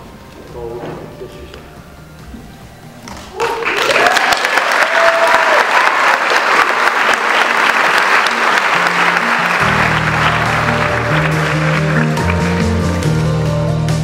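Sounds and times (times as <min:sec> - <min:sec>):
music: 0:00.0 - 0:04.8, 0:06.2 - 0:14.0
crowd applauding: 0:03.2 - 0:13.2
deep bass notes: 0:09.2 - 0:14.0.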